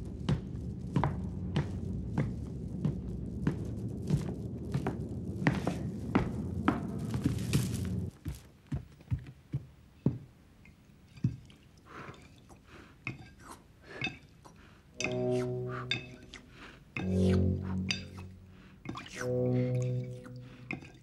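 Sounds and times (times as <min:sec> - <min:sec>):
low rumble with thuds: 0:00.0 - 0:08.2
faint eating sounds: 0:10.6 - 0:21.0.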